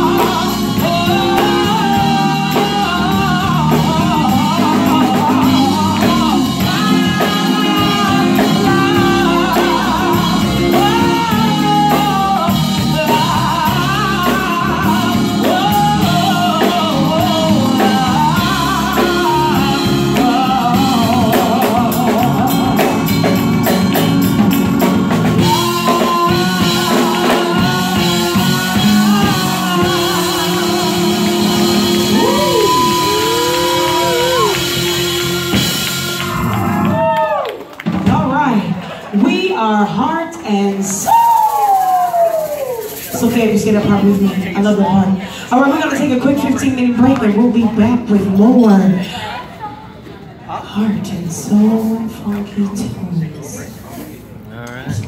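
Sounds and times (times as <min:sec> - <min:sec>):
woman singing: 0:00.0 - 0:23.2, 0:25.3 - 0:36.3
live band playing: 0:00.0 - 0:55.0.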